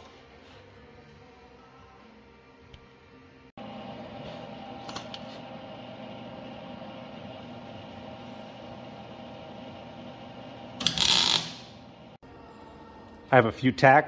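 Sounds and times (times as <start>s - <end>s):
steady mechanical hum: 2.7s - 13.4s
welder arc crackle: 3.6s - 12.2s.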